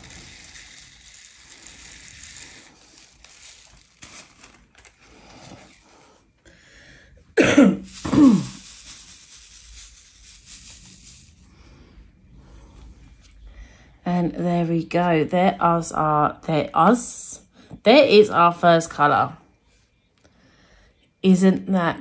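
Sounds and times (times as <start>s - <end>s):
plastic baggies rustling: 0.0s - 6.4s, 7.6s - 11.4s
person coughing: 7.4s - 8.6s.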